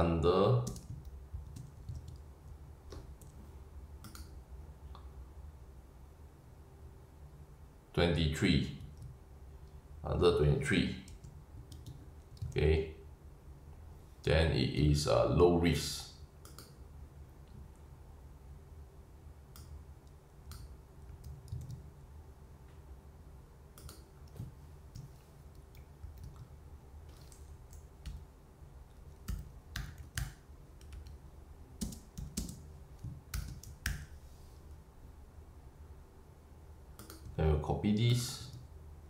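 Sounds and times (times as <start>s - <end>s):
faint low hum: 0.0s - 39.0s
keyboard keystroke clicks: 4.0s - 4.3s, 37.0s - 37.4s.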